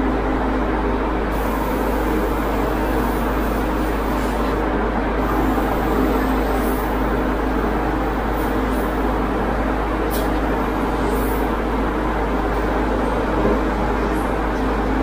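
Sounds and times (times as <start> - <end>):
airbrush spraying hiss: 1.3 - 4.6.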